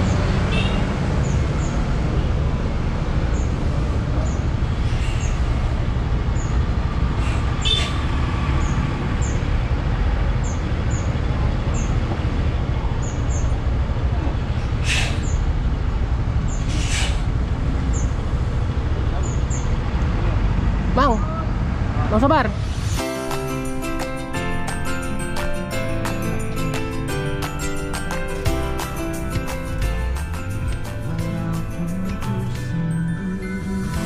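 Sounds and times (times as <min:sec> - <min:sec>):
bus engine rumbling: 0:00.0 - 0:34.0
air brake hisses: 0:14.8 - 0:15.4, 0:16.6 - 0:17.4.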